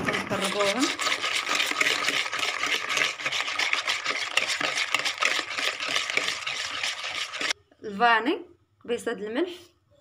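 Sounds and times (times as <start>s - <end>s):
whisk beating in plastic bowl: 0.0s - 7.6s.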